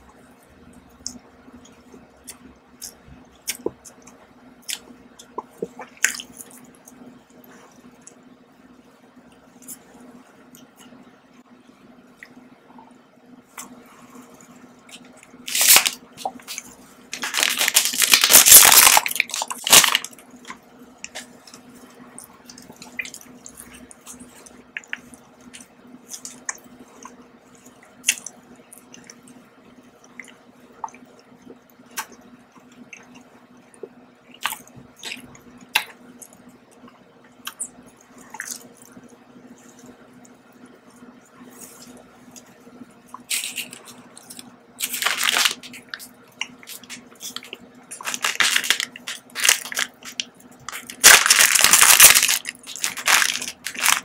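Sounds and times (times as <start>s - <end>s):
faint steady hum: 0.0s - 54.0s
person crunching and chewing: 14.9s - 21.6s, 43.1s - 54.0s.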